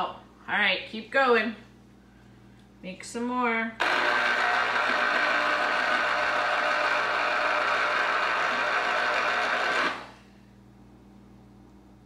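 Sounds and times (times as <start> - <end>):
electric citrus juicer running: 3.8 - 10.2.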